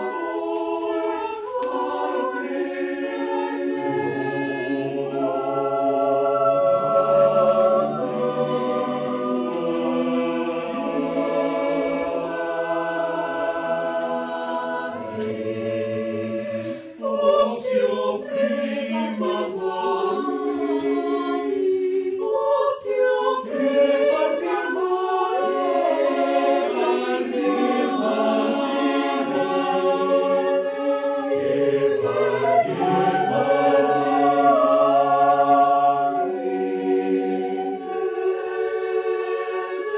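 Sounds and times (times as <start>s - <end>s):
mixed choir singing a cappella: 0.0s - 39.9s.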